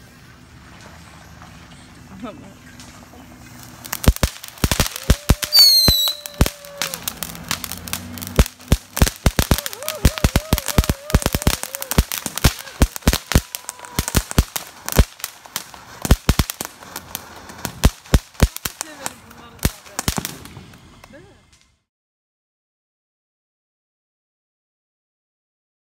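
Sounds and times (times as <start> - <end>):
firework crackling and popping: 0.0 - 21.9
firework whistling: 2.8 - 21.5.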